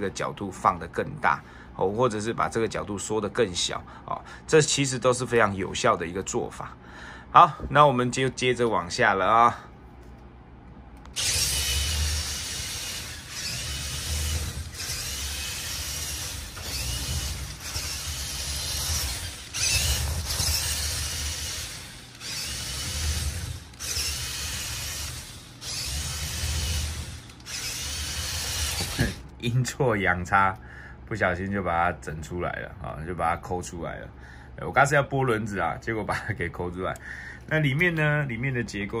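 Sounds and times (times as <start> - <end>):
toy car electric motor whining: 11.2 - 29.3.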